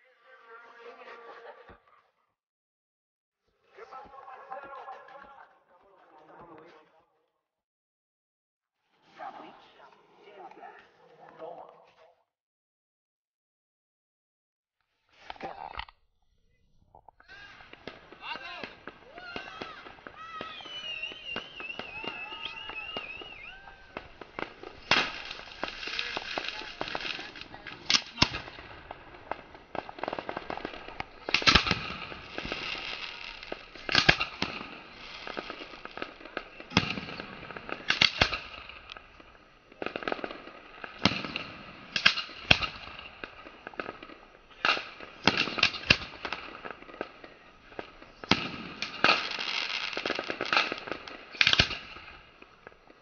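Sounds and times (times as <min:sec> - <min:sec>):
fireworks bangs: 0:17.0 - 0:53.0
fireworks crackling and hiss: 0:17.2 - 0:53.0.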